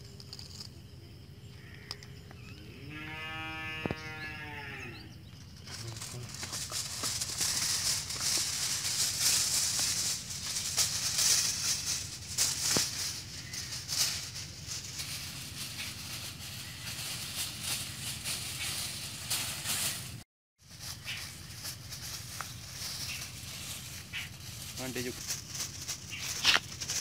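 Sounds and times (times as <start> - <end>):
aluminium foil crinkling: 5.6 - 27.0.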